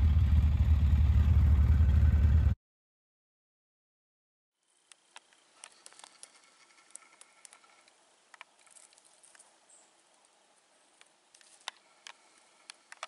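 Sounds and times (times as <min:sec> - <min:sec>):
woodland ambience: 0:04.6 - 0:13.0
light ticks and rustles: 0:04.8 - 0:13.0.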